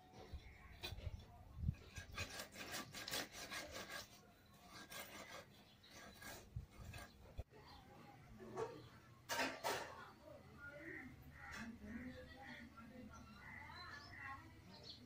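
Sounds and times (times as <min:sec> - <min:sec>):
scraping and rubbing strokes: 0:01.7 - 0:07.4.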